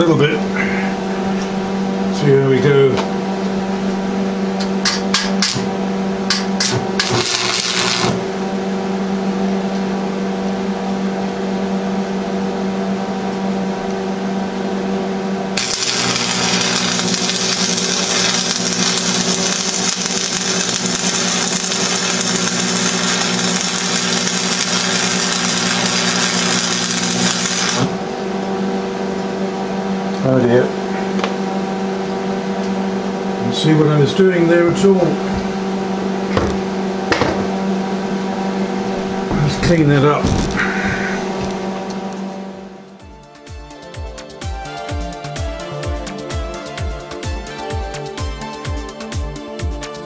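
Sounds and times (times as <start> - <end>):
steady electrical hum: 0.0 - 43.1
crackling welding arc: 4.8 - 5.7, 6.3 - 8.3, 15.6 - 28.0.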